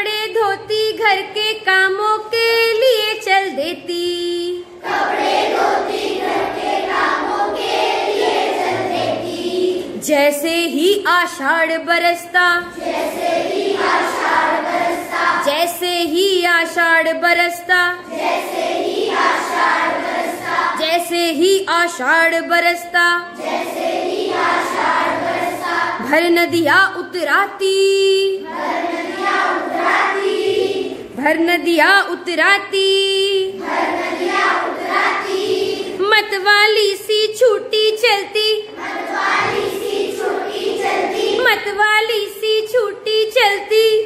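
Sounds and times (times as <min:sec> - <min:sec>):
children singing in chorus: 0:04.8 - 0:10.0, 0:12.6 - 0:15.6, 0:18.0 - 0:20.8, 0:23.3 - 0:26.1, 0:28.4 - 0:31.2, 0:33.5 - 0:36.0, 0:38.6 - 0:41.5.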